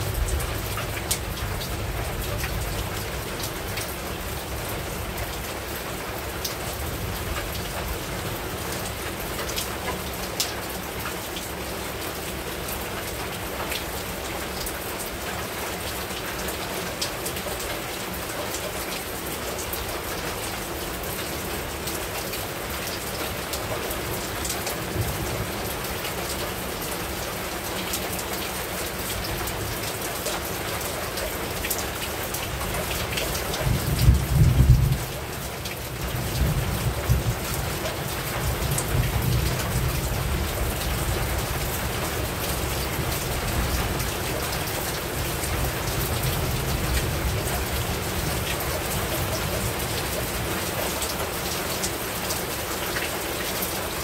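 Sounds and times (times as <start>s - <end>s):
heavy rain on a roof: 0.0s - 54.0s
thunder rumbling: 33.6s - 35.2s.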